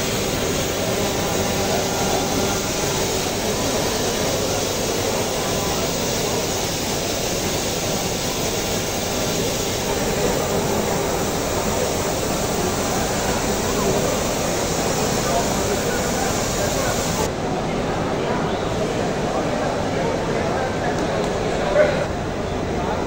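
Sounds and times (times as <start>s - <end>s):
machinery running: 0.0s - 17.3s
crowd voices: 0.0s - 23.0s.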